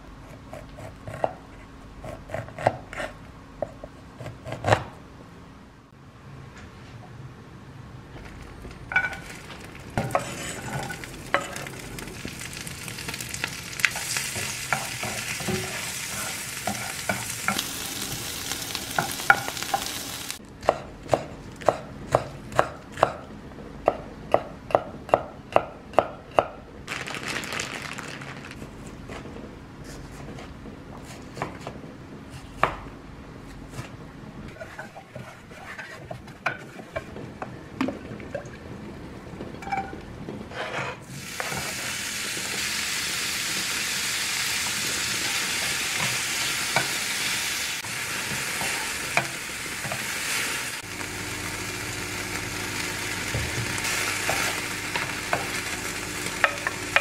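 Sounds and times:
butter sizzling in frying pan: 9.0 - 20.4, 41.1 - 57.0.

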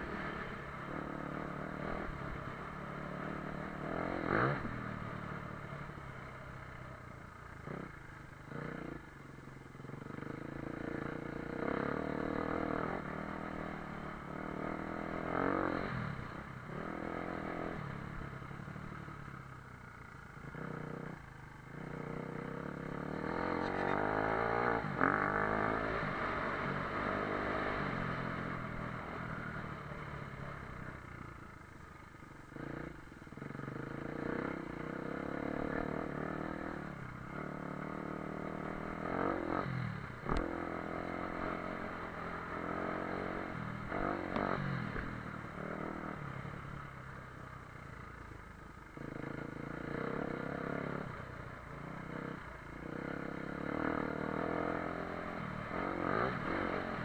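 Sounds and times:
motorcycle engine revving: 0.0 - 57.0.

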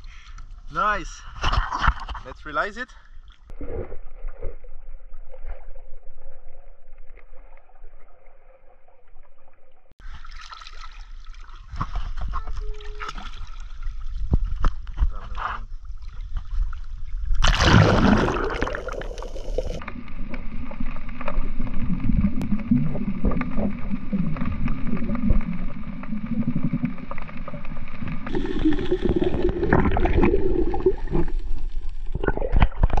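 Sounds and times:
water splashing: 10.0 - 15.0, 15.7 - 33.0
muffled underwater rumble: 18.7 - 33.0.

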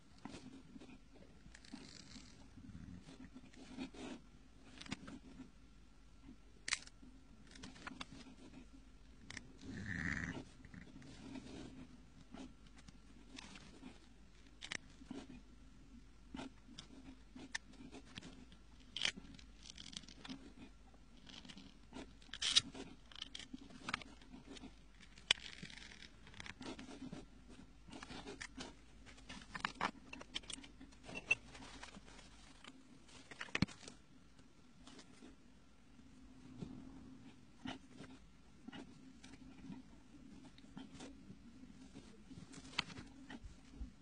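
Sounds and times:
pen nib scratching on paper: 0.2 - 5.5, 16.3 - 20.7, 37.2 - 43.8.

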